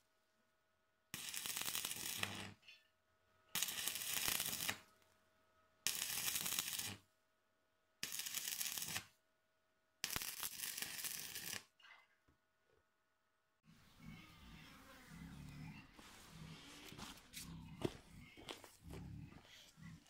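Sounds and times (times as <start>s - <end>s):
arc welding crackle: 1.2s - 2.6s, 3.6s - 4.8s, 5.9s - 7.0s, 8.0s - 9.1s, 10.0s - 11.7s.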